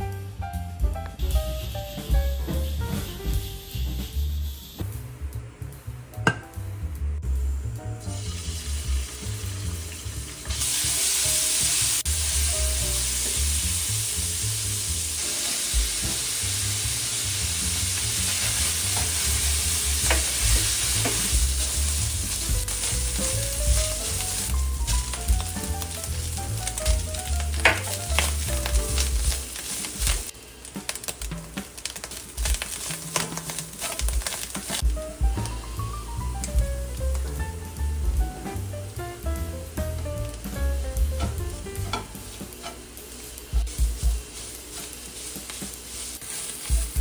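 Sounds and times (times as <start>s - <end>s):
light background music: 0.0s - 13.8s, 14.6s - 31.8s, 33.7s - 47.0s
food sizzling in oil in a wok: 0.0s - 47.0s
spatula scraping a wok: 15.2s - 24.6s, 31.6s - 34.8s, 41.0s - 47.0s
spatula scraping a pan: 32.4s - 34.8s, 41.2s - 42.9s, 43.6s - 47.0s.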